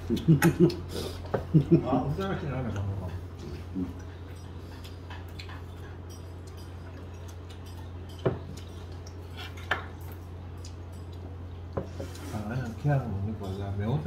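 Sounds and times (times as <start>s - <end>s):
steady low hum: 0.0s - 14.0s
tableware clinking: 4.3s - 10.2s.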